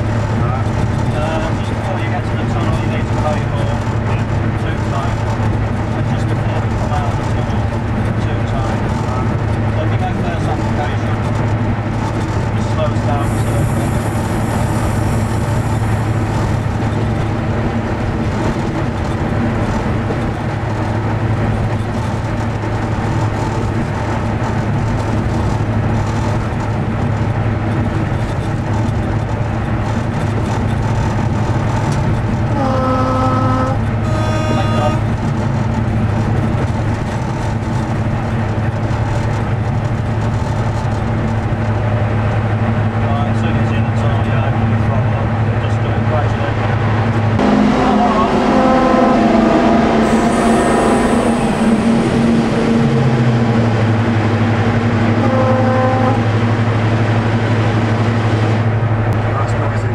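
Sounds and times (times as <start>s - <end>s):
diesel locomotive engine drone: 0.0s - 59.9s
two-tone train horn: 32.5s - 35.2s, 47.4s - 53.2s, 55.1s - 56.4s.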